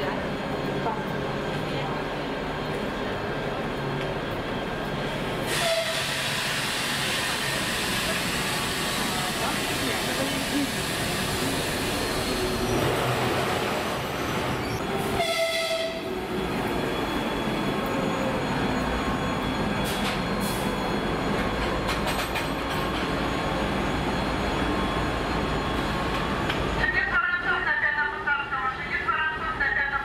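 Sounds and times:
diesel locomotive engine running: 0.0 - 30.0
locomotive horn: 5.5 - 6.1, 15.0 - 16.1.

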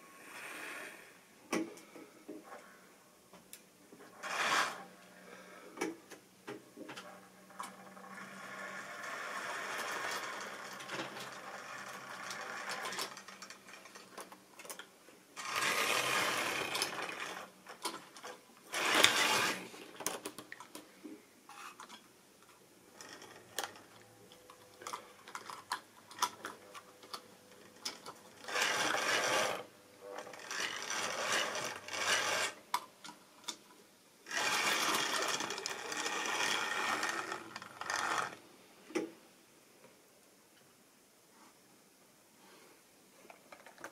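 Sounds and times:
model train wheels clicking: 4.2 - 4.8, 7.6 - 14.8, 15.4 - 20.2, 27.1 - 33.6, 34.3 - 38.4
small electric motor running: 15.4 - 17.5, 18.8 - 19.6, 28.5 - 29.6, 30.3 - 32.6, 34.3 - 38.4.

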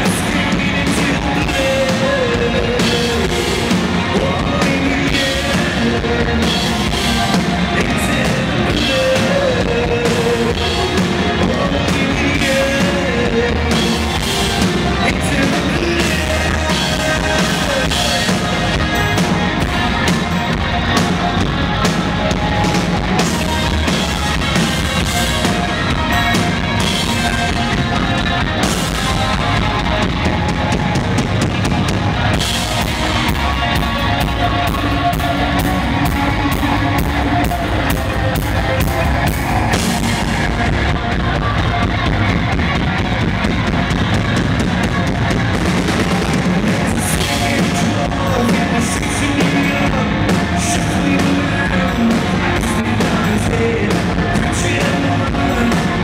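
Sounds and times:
man singing: 0.0 - 20.2, 46.0 - 56.0
drum kit: 0.0 - 56.0
electric bass: 0.0 - 56.0
electric guitar: 0.0 - 56.0.

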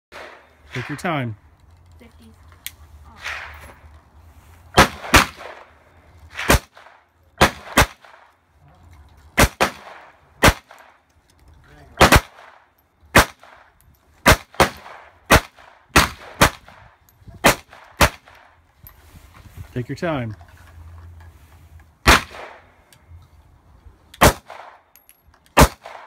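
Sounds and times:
pistol gunshots: 4.8 - 5.7, 6.3 - 8.2, 9.4 - 11.0, 12.0 - 13.6, 14.2 - 16.8, 17.4 - 18.4, 22.0 - 22.6, 24.2 - 24.8, 25.6 - 26.0.

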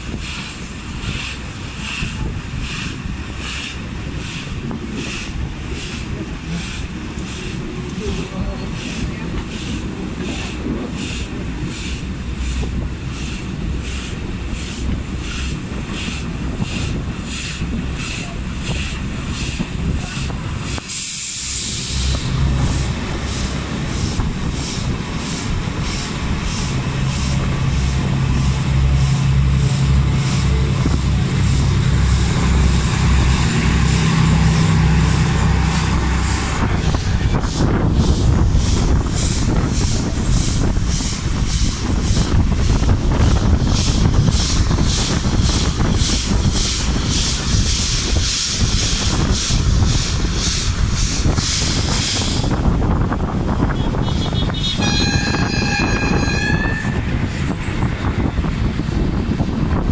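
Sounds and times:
rush of moving train: 0.0 - 59.9
steam locomotive exhaust beats: 0.0 - 59.9
diesel engine pulsing drone: 21.4 - 59.9.

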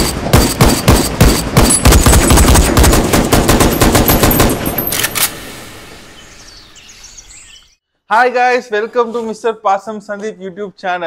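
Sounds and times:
automatic rifle fire: 0.0 - 5.4.

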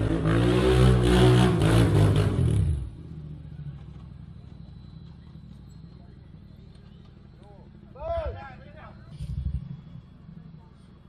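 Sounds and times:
atv engine revving: 0.0 - 3.0.

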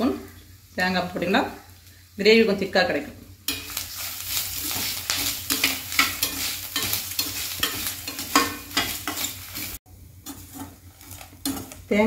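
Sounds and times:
frying sizzle: 0.0 - 12.0
spatula scraping steel pan: 3.5 - 11.9.

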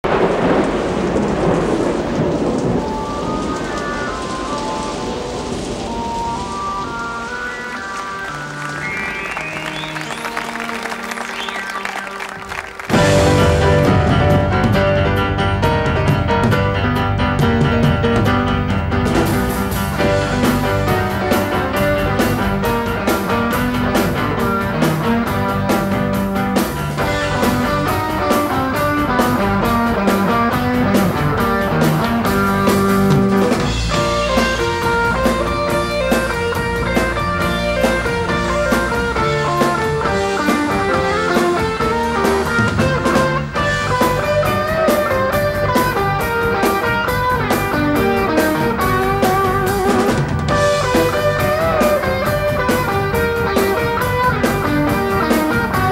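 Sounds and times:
rock band playing: 2.4 - 55.9
steady drum beat: 11.9 - 55.9.

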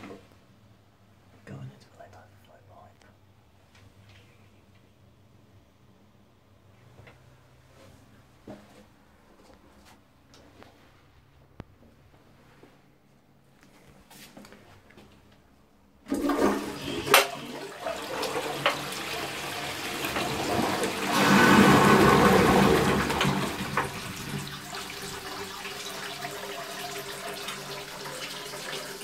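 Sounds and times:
toilet flushing: 16.0 - 29.0
running water: 16.1 - 29.0.

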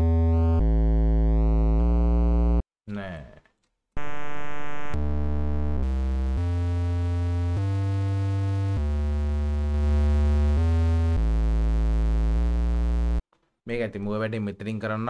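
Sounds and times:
distorted sub bass notes: 0.0 - 2.6, 4.0 - 13.2.

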